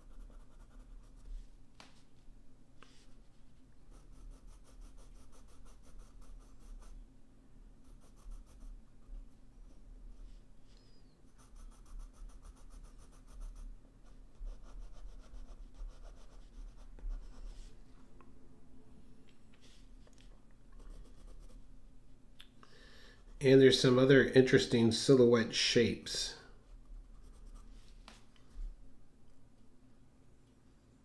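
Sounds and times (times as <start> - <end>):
pencil scratching on paper: 0.0 - 1.4, 3.9 - 7.0, 7.8 - 8.8, 11.3 - 17.7, 20.8 - 21.7, 27.0 - 27.9.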